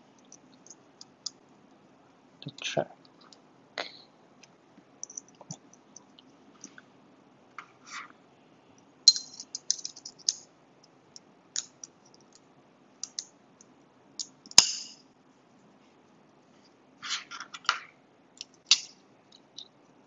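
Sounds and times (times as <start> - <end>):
metal knife parts clicking: 9.1 - 10.4, 18.4 - 19.7.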